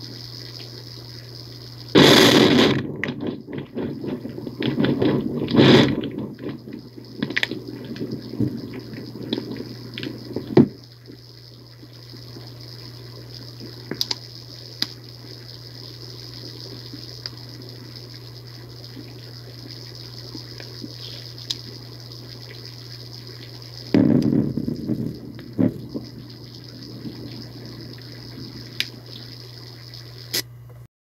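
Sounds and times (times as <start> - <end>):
steady low hum: 0.0 - 30.9
loud burst of noise: 1.9 - 10.8, 23.8 - 30.4
water-like rushing: 23.8 - 29.8.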